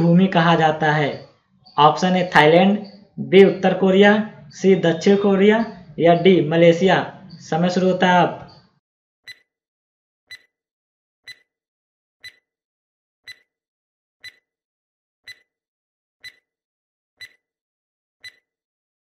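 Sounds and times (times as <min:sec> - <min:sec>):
countdown timer ticking: 0:11.3 - 0:11.5, 0:12.2 - 0:12.4, 0:13.3 - 0:13.5, 0:14.2 - 0:14.4, 0:15.3 - 0:15.5, 0:16.2 - 0:16.4, 0:17.2 - 0:17.4, 0:18.2 - 0:18.4.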